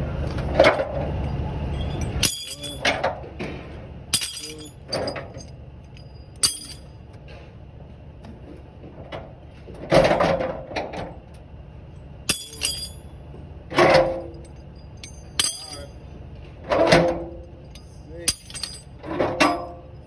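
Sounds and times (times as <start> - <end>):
metal chains clanking and rattling: 0.6 - 7.0, 12.3 - 20.0
sharp ringing metal strikes: 2.2 - 2.8, 12.3 - 13.0, 14.8 - 15.9.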